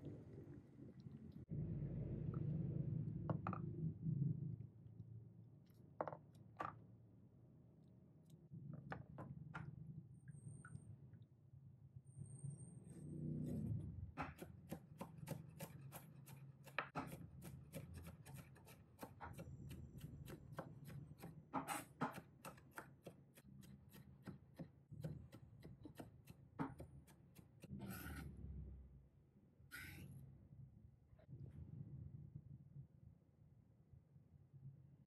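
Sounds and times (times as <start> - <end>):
knife chopping on wooden board: 14.2 - 28.2
knife scraping on board: 20.0 - 22.9, 25.9 - 28.4, 29.7 - 30.1.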